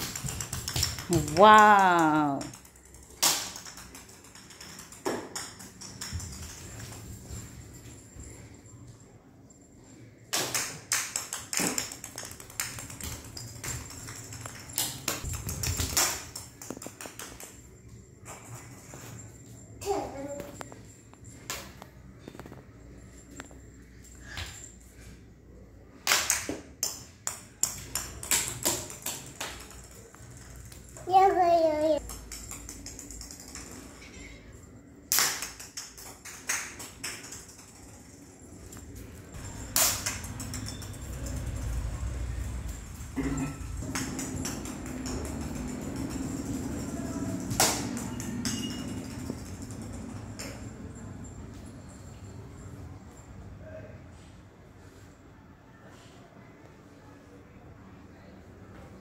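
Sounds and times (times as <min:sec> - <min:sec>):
plastic racket and ball tapping: 0:00.0 - 0:07.0.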